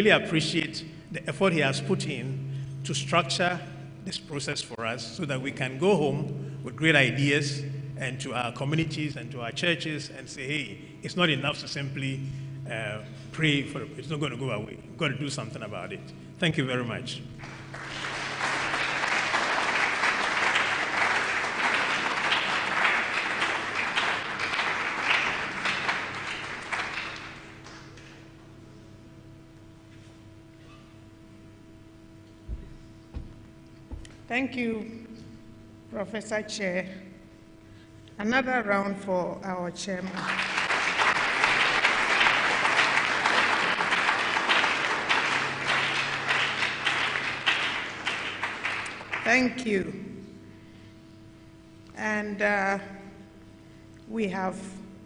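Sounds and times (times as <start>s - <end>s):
faint low hum: 0.0s - 55.0s
audience applauding: 17.4s - 28.2s, 40.1s - 49.4s.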